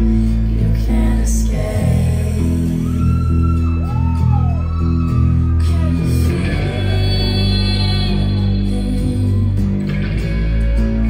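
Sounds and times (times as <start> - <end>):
person singing: 0.0 - 3.4, 5.5 - 11.0
bass and guitar chords: 0.0 - 11.0.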